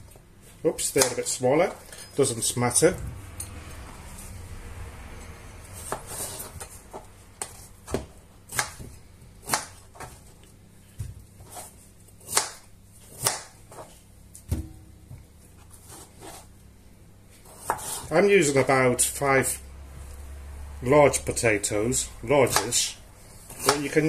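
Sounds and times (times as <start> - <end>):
knife cutting on plastic board: 17.4 - 18.1.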